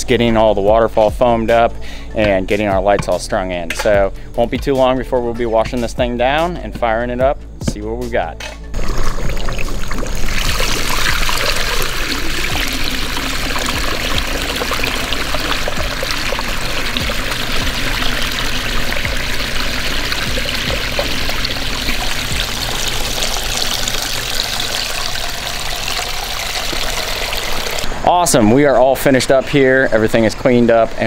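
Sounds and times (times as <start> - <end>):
water splashing over rocks: 8.8 - 27.9.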